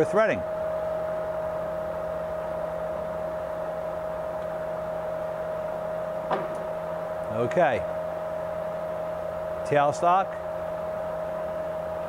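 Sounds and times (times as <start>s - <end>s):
lathe whine: 0.0s - 12.0s
low hum: 3.8s - 9.6s.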